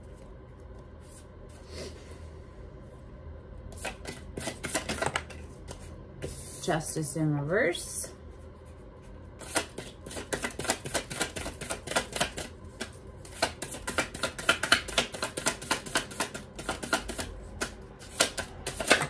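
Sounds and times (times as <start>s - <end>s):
cards being shuffled: 3.8s - 6.4s, 9.4s - 19.0s.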